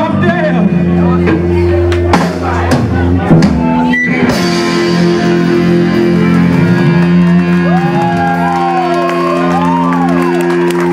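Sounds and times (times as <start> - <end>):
rock band playing: 0.0 - 10.9
wavering rising and falling notes: 3.6 - 10.9.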